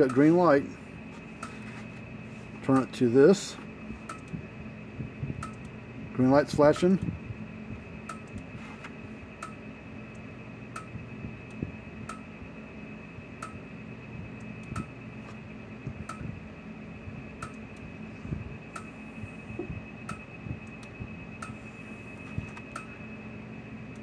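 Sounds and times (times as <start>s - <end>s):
faint high whine and low hum: 0.0s - 24.0s
electric fence ticking pulses: 5.4s - 5.8s, 9.4s - 12.3s, 14.3s - 15.0s, 17.4s - 17.9s.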